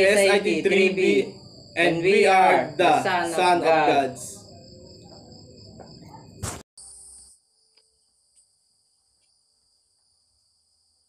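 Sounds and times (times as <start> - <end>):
faint high hiss: 0.0 - 4.6
crickets chirping: 0.0 - 11.0
sharp knock: 5.8 - 6.6.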